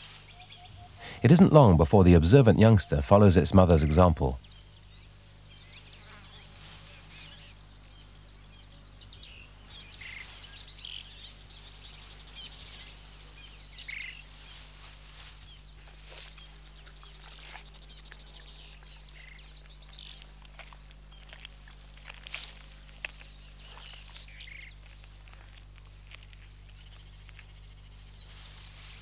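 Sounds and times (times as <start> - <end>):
insects trilling: 0.0 - 29.0.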